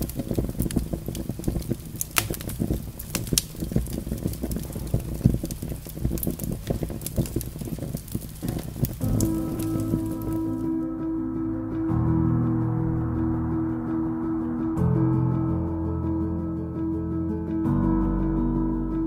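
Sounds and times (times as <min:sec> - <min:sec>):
flame burning with crackles: 0:00.0 - 0:10.9.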